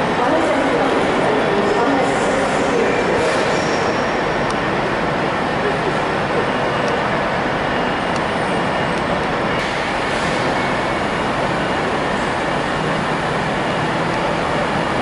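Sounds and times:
train station mechanical rumble: 0:00.0 - 0:15.0.

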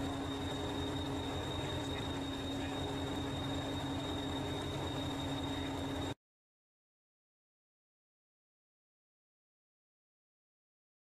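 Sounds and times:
thin high whine: 0:00.0 - 0:06.2.

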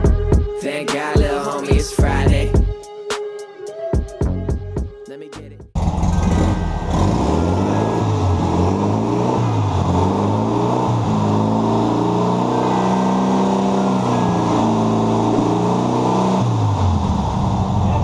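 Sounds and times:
car engine revving: 0:05.8 - 0:18.0.

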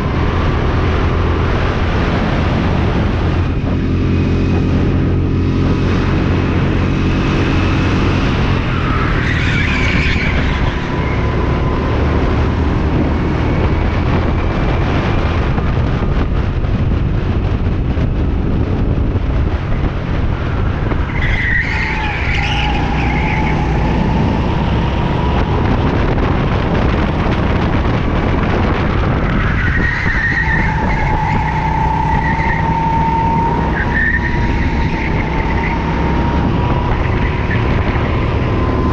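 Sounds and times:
tyres squealing: 0:08.6 - 0:11.2, 0:21.1 - 0:25.0, 0:29.2 - 0:37.8.

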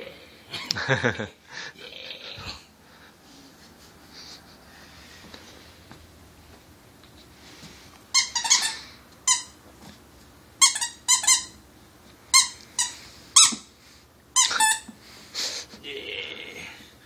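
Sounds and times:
squeaky dog toy squeaking: 0:08.1 - 0:09.6, 0:10.6 - 0:11.6, 0:12.3 - 0:13.7, 0:14.4 - 0:14.9.

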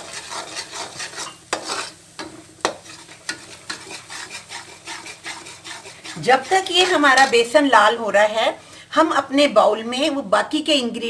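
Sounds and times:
metal skimmer scraping pan: 0:00.0 - 0:07.6
light sizzle: 0:00.0 - 0:11.0.

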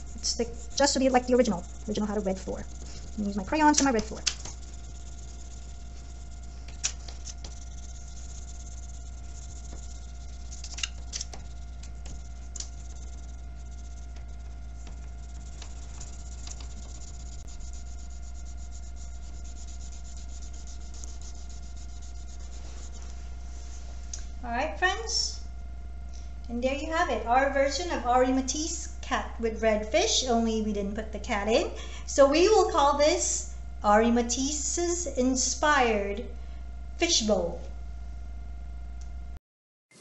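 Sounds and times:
crayon scratching on paper: 0:00.0 - 0:23.2
electrical hum: 0:00.0 - 0:39.4.

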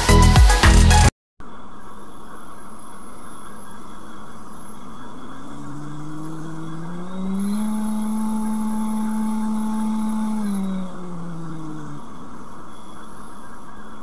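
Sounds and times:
small motor whirring: 0:05.6 - 0:11.9.

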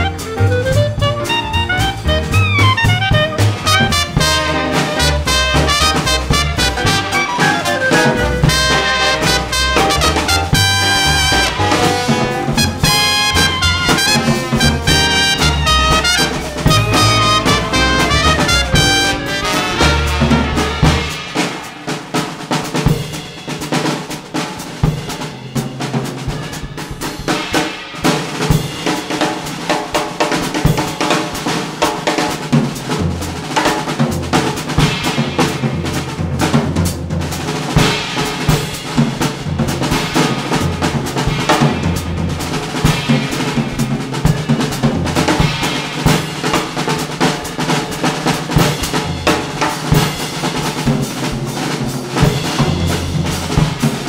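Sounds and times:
bass notes: 0:00.0 - 0:21.3
drum kit beat: 0:00.0 - 0:54.0.

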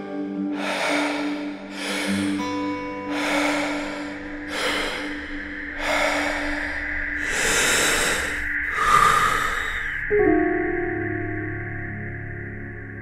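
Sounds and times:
low music drone: 0:00.0 - 0:13.0
deep rhythmic breathing: 0:00.5 - 0:10.6.

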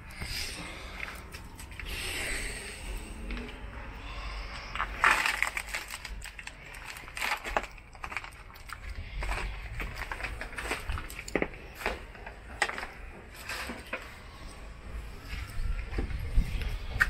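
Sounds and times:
footsteps crunching on broken glass: 0:04.8 - 0:13.8.

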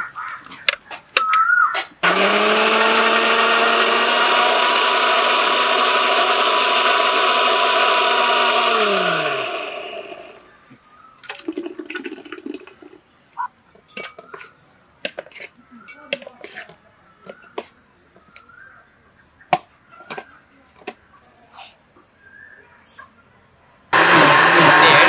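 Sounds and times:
electric mixer grinder whining: 0:02.0 - 0:10.5, 0:24.0 - 0:25.0.

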